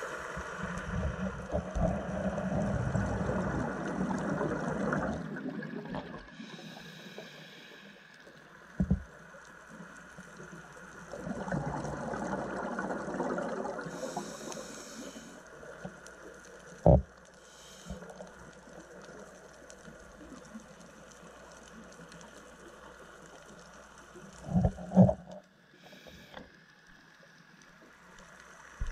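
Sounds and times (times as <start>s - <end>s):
bubbles gurgling: 0.9s - 6.3s, 11.1s - 14.2s
diver breathing underwater: 6.0s - 8.0s, 13.7s - 15.4s.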